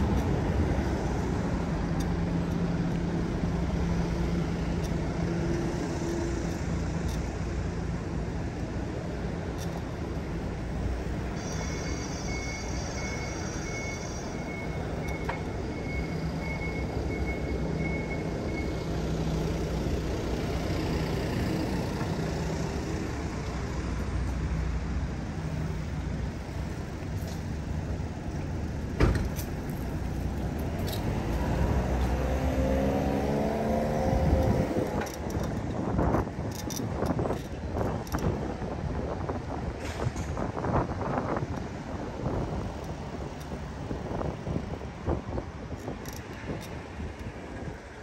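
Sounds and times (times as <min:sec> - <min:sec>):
bicycle road noise: 0:00.0 - 0:48.0
traffic passing: 0:00.0 - 0:48.0
vehicle engine passing by: 0:30.6 - 0:35.0.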